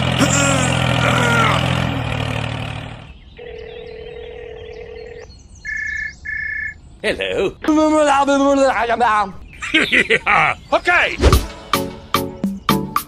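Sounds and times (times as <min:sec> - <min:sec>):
tractor engine running: 0:00.0 - 0:03.8
telephone dial tone: 0:03.4 - 0:06.7.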